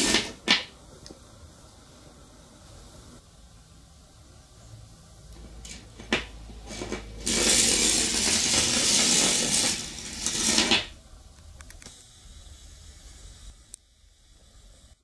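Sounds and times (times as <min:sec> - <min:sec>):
magnets rattling along wire coil: 0:05.6 - 0:11.0.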